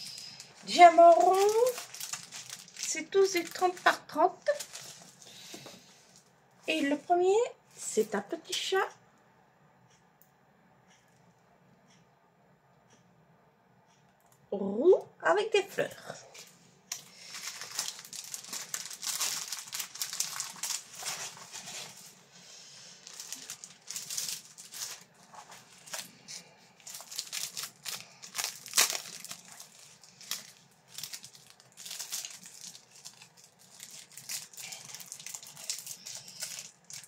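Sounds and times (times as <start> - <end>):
plastic film crinkling: 0.0 - 7.2, 16.3 - 37.0.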